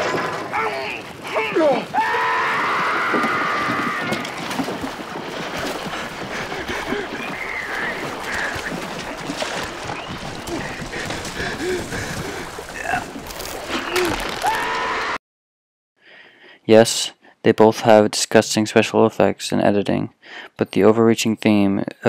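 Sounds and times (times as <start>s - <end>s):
sea water splashing around boat: 0.0s - 14.8s
man screaming: 0.5s - 4.2s.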